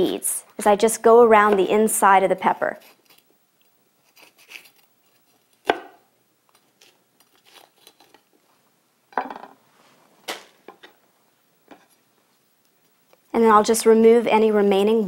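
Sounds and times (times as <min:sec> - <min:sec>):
knife cutting pepper: 0:04.0 - 0:06.0.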